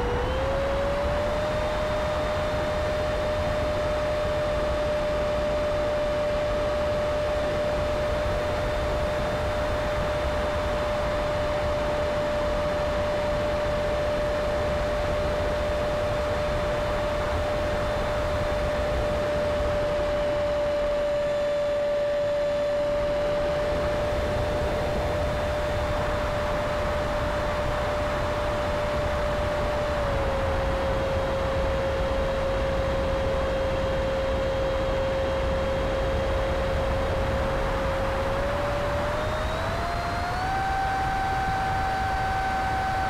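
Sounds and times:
model plane motor whining: 35.8 - 43.0.

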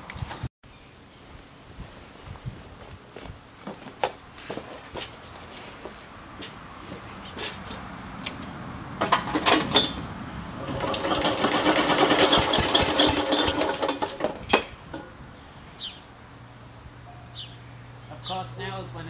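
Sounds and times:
small engine clattering: 9.0 - 10.0, 10.6 - 15.1
engine knocks: 9.0 - 15.2.

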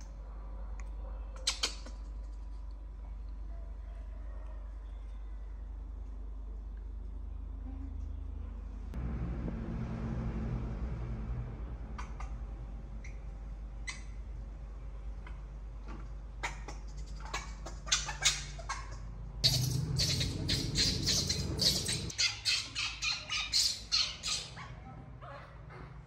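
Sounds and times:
low hum: 4.7 - 17.1, 19.1 - 22.1
baby monkey squeaking: 17.1 - 24.7.

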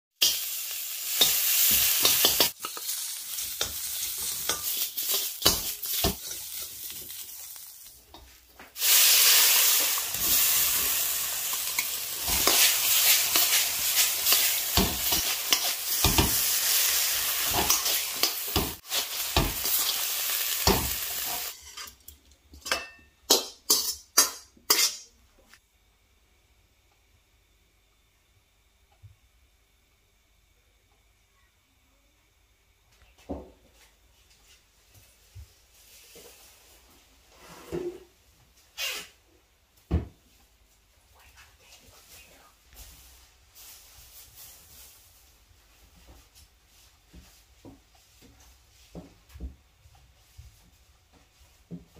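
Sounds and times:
metal utensils scraping a pan: 0.2 - 7.6, 8.8 - 22.0, 22.6 - 25.1
hot oil sizzling in a wok: 0.2 - 21.9, 42.7 - 45.8.

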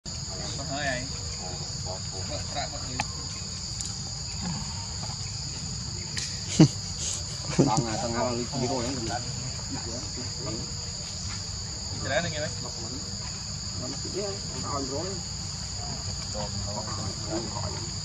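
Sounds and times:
high-pitched insect chorus: 0.1 - 18.0.

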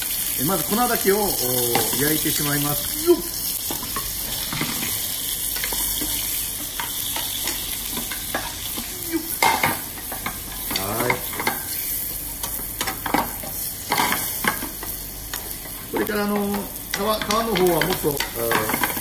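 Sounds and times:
chicken sizzling in oil: 0.0 - 19.0
spoon and fork scraping a pan: 5.6 - 15.6.

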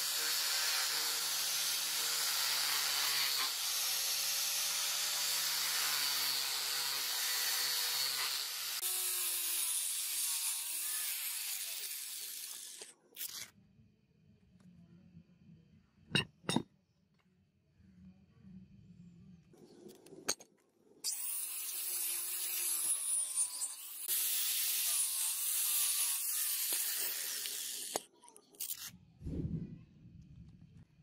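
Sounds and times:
angle grinder grinding steel: 0.0 - 13.5, 21.1 - 28.0.

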